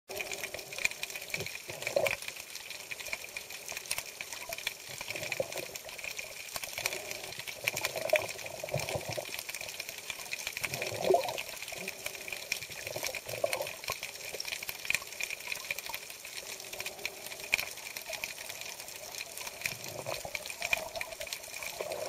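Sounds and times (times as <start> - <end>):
water gurgles: 0.1 - 22.0.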